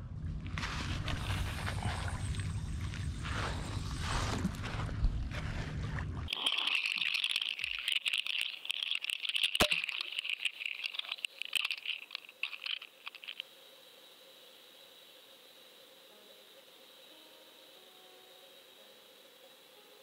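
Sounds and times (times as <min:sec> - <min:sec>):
faint electronic hum: 0:00.0 - 0:20.0
underwater crackle and clicks: 0:06.1 - 0:13.5.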